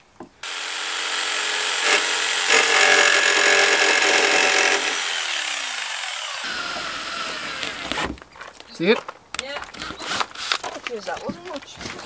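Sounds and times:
jigsaw sawing through sheet steel: 0.4s - 8.1s.

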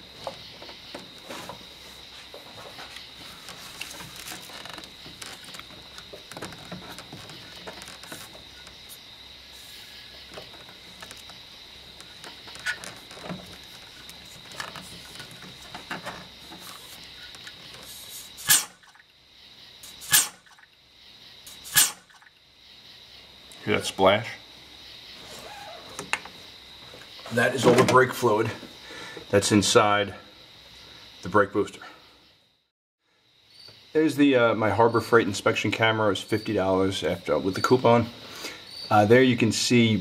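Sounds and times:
rubber and plastic rubbing and clicks: 2.6s - 8.7s, 12.0s - 18.3s
sharp pops: 12.0s - 19.1s, 19.8s - 20.7s, 21.5s - 22.4s.

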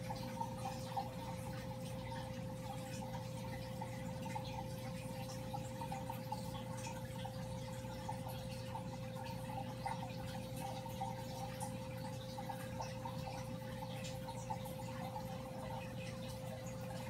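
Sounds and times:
aquarium pump motor hum: 0.0s - 17.0s
water trickling: 0.0s - 17.0s.

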